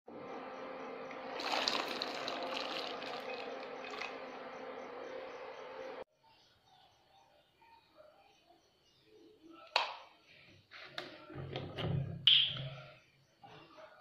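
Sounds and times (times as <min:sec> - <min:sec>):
water pouring into pot: 0:01.3 - 0:04.2.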